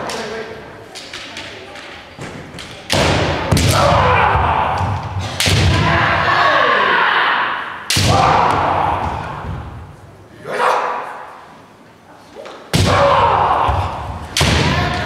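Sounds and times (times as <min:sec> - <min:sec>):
loud drawn-out shouts: 0:03.5 - 0:09.8, 0:10.4 - 0:11.4, 0:12.8 - 0:15.0.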